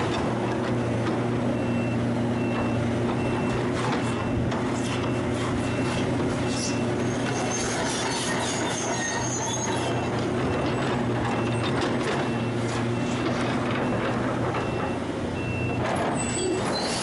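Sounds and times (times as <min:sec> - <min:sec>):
high squeal: 0:06.5 - 0:10.1, 0:16.2 - 0:17.0.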